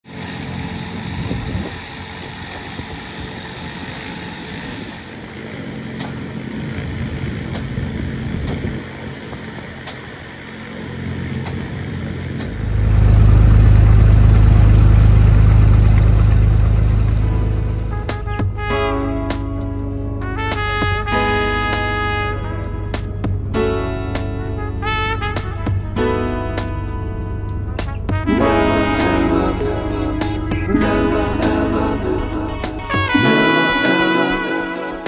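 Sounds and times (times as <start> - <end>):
piston aircraft engine running: 0.0 - 35.0
propeller clicks: 0.1 - 30.7
low rumble: 12.6 - 33.4.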